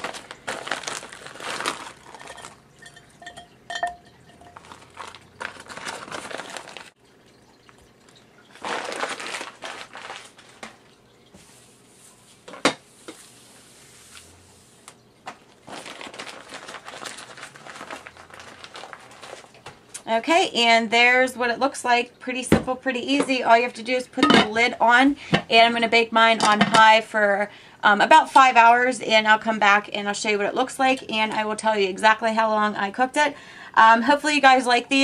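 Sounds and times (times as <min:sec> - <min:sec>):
frozen vegetable bag crinkling: 0:00.0 - 0:03.1, 0:04.4 - 0:07.0, 0:07.6 - 0:11.0, 0:14.9 - 0:19.9.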